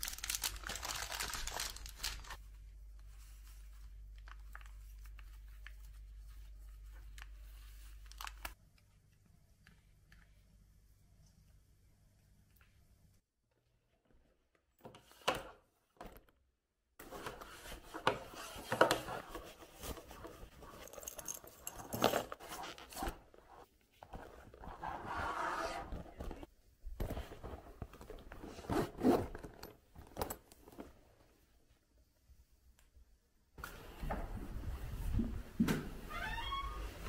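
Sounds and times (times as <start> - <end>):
leather scraping and rustling: 17.0 - 31.0
zipper opening and closing: 24.2 - 26.5, 28.4 - 29.7.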